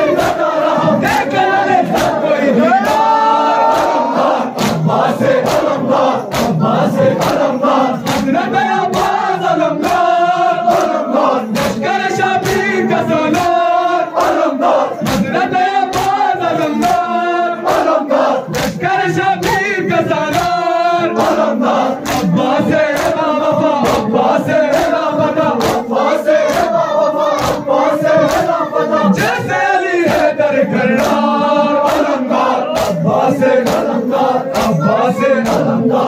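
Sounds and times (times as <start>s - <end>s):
men chanting in unison: 0.0s - 36.0s
chest-beating slaps: 0.2s - 3.1s, 3.7s - 9.2s, 10.7s - 12.7s, 14.2s - 16.2s, 17.7s - 18.8s, 22.0s - 24.1s, 25.6s - 26.8s, 27.4s - 29.4s, 31.8s - 34.8s.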